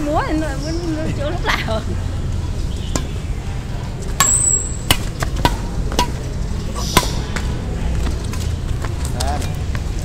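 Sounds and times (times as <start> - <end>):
rackets hitting shuttlecock: 2.9 - 3.2, 4.1 - 7.6.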